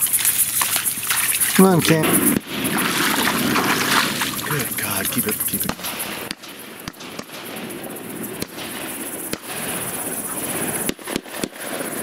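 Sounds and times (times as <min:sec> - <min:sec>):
distant shotgun shots: 0:02.0 - 0:04.3, 0:05.6 - 0:12.0.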